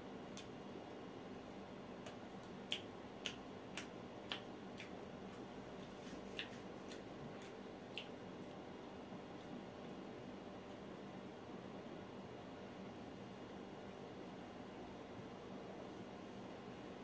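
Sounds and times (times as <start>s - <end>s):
steady low hum: 0.0s - 17.0s
wet chewing clicks and smacks: 2.0s - 5.6s, 6.3s - 8.6s.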